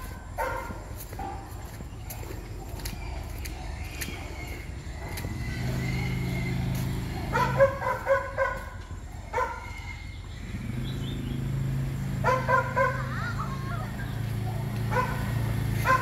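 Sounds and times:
small engine humming: 0.0s - 16.0s
dog barking in sharp yaps: 6.8s - 8.8s, 12.2s - 13.0s, 14.8s - 16.0s.

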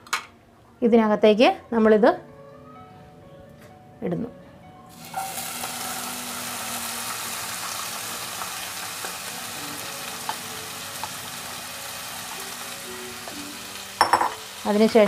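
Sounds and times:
food sizzling in hot oil: 4.9s - 15.0s.

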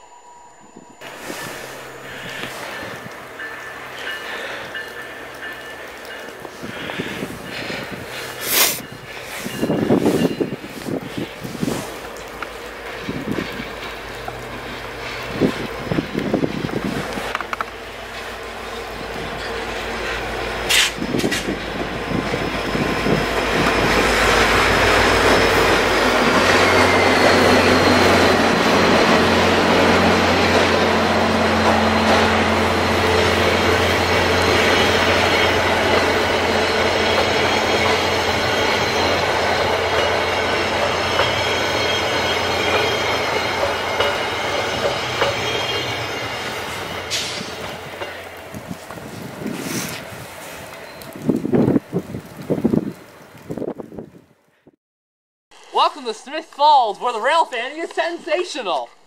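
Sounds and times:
locomotive engine drone: 0.0s - 51.2s
train wheels rumbling on rails: 0.7s - 54.2s
high wheel squeal: 18.8s - 47.6s.

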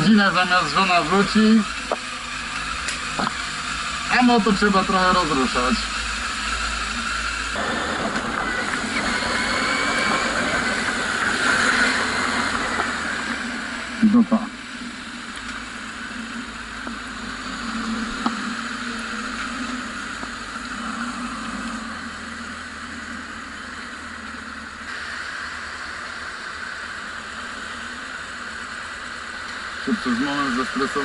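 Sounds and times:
motorcycle engine idling: 0.0s - 31.0s.

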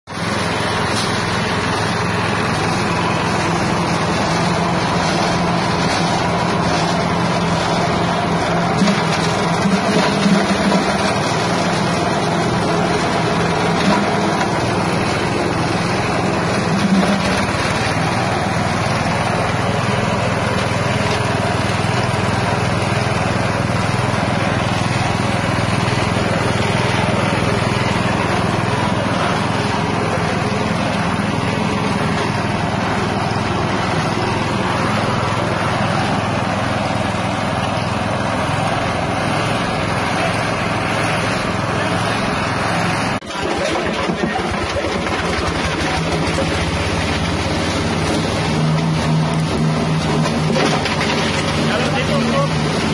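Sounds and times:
petrol engine running: 0.0s - 52.9s.

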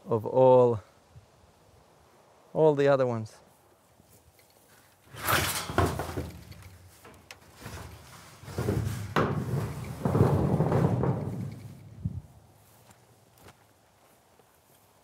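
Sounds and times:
metal roof sheet handled: 5.1s - 12.2s
wooden cage knocks and thuds: 5.1s - 12.3s.

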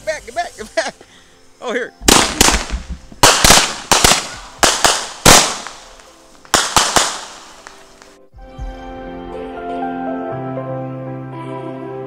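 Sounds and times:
fireworks bangs: 2.0s - 8.2s.

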